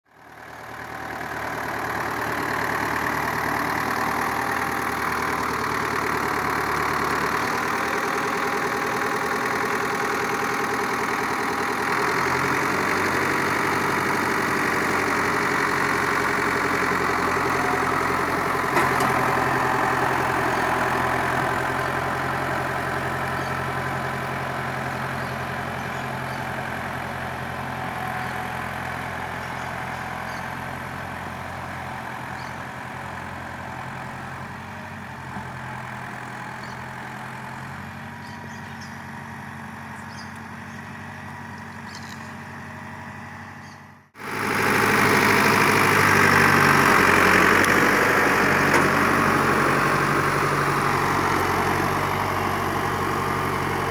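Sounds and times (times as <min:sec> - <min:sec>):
tractor diesel engine running: 0:00.0 - 0:53.9.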